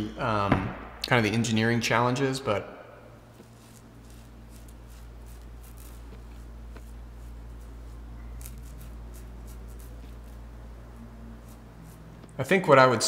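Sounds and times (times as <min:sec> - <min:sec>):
steady low hum: 0:00.0 - 0:13.0
razor scraping stubble: 0:03.3 - 0:12.4.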